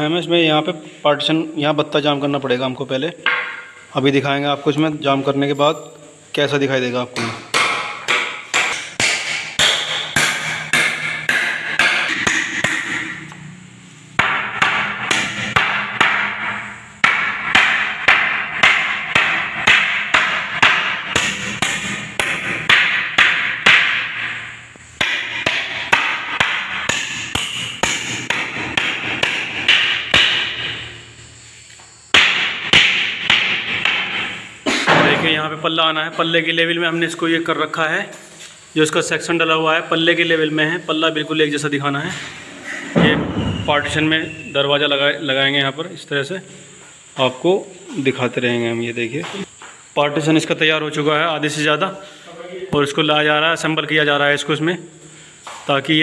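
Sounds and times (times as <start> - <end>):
hammer driving nails into wood: 7.2 - 13.2.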